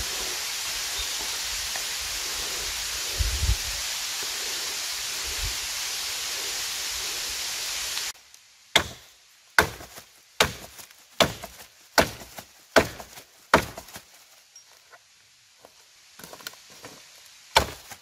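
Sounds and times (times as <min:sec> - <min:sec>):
blade chopping into wood: 0:08.8 - 0:14.0, 0:17.6 - 0:18.0.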